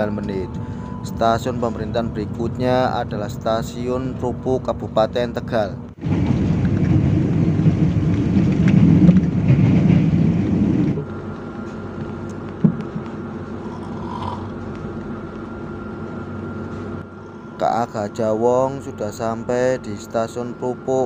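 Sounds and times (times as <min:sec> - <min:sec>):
train wheels rumbling on rails: 0:00.0 - 0:15.2.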